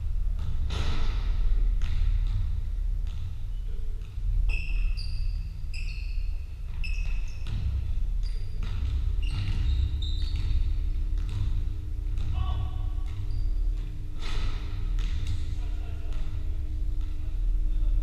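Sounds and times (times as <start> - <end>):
low hall rumble: 0.0 - 18.0
basketball bouncing on wooden floor: 0.4 - 4.9, 6.7 - 14.3, 14.9 - 15.4
shoes squeaking on court: 4.4 - 11.5, 13.0 - 14.4.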